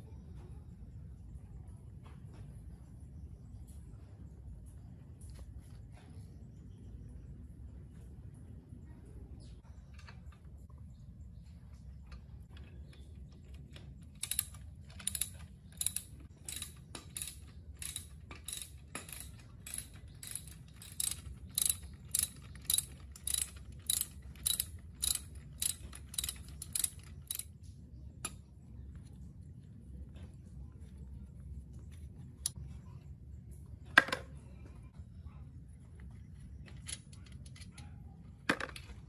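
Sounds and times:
ratcheting wrench clicking: 0:13.7 - 0:27.5.

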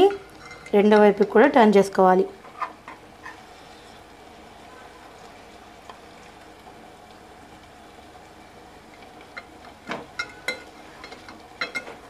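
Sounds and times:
chicken sizzling in a pan: 0:00.0 - 0:12.0
fork clinking on metal pan: 0:10.2 - 0:12.0.

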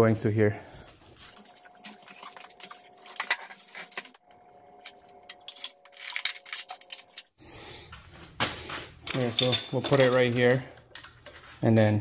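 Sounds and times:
chains clinking: 0:05.2 - 0:07.2, 0:09.0 - 0:11.2.

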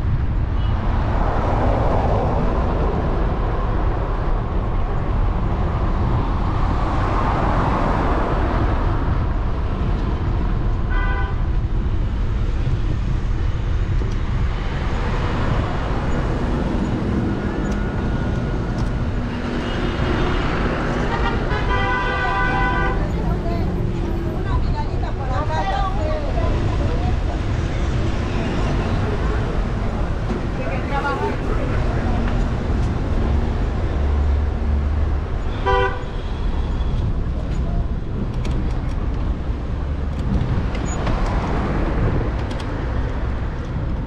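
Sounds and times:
cars passing: 0:00.0 - 0:44.0
wind and road noise: 0:00.0 - 0:44.0
people's voices: 0:21.0 - 0:33.6
car horn toot: 0:35.5 - 0:36.4.

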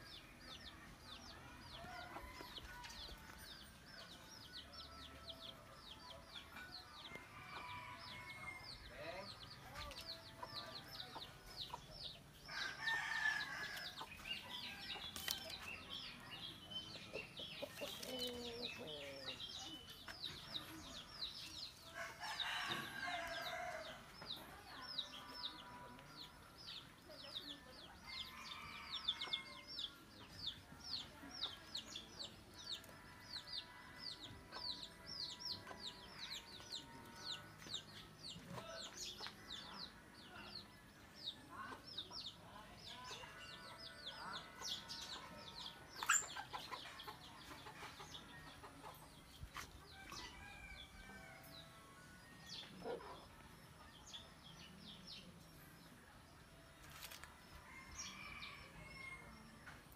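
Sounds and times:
chickens clucking: 0:44.7 - 0:49.8.

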